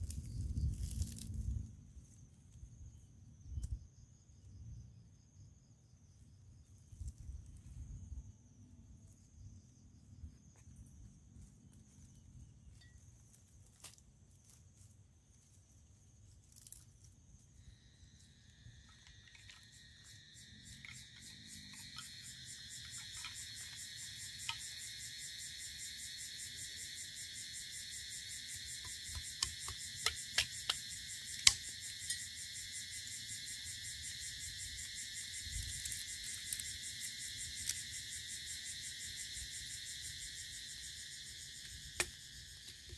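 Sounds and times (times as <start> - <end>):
twigs snapping in campfire: 0.0 - 1.7, 16.4 - 17.1, 28.8 - 31.8, 35.6 - 36.8, 37.4 - 37.9, 41.6 - 42.9
insect chorus pulsing trill: 1.9 - 42.9.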